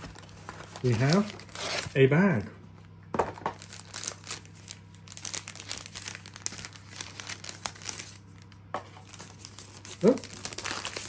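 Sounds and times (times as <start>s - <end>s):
parchment bag crinkling: 0.0s - 2.5s, 3.5s - 11.0s.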